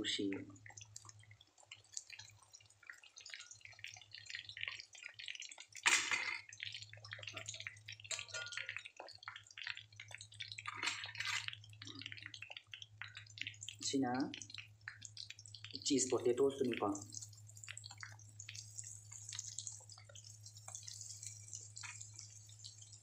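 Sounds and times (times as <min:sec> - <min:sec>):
hot oil sizzling while deep-frying: 0:00.0 - 0:23.0.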